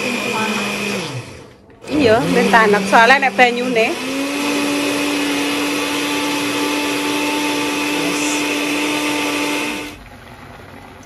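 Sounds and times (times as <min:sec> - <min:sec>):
blender motor whining: 0:00.0 - 0:10.1.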